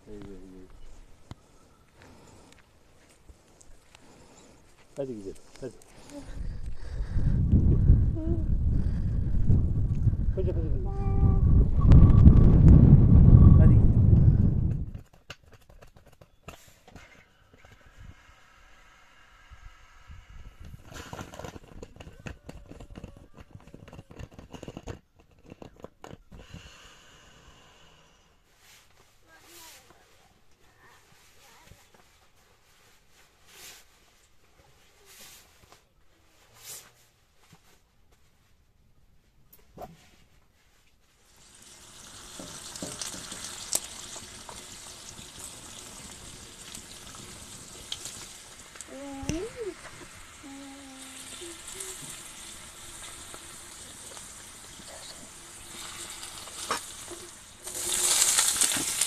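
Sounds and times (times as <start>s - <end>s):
rustle: 15.9s - 59.0s
potato slices sizzling in oil: 41.2s - 59.0s
oil popping and clicking: 41.4s - 50.2s.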